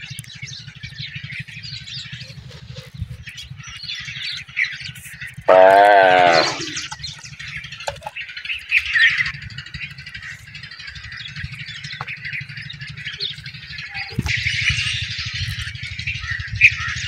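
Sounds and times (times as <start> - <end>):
parakeets chirping and chattering: 0.0 - 17.0
loud drawn-out bird call: 5.4 - 7.0.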